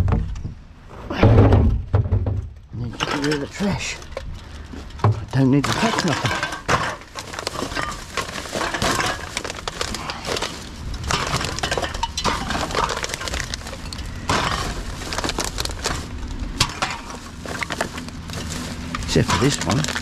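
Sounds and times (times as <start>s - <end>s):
cans and bottles clattering: 1.4s - 20.0s
plastic bag crinkling: 3.2s - 20.0s.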